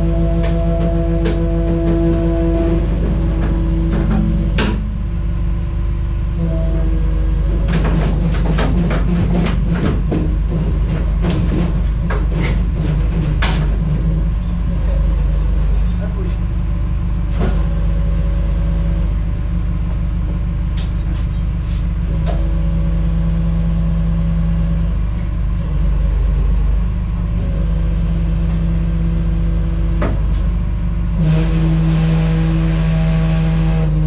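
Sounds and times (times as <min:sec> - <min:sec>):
vehicle engine running: 0:00.0 - 0:34.0
sharp clicks and knocks: 0:03.4 - 0:04.8.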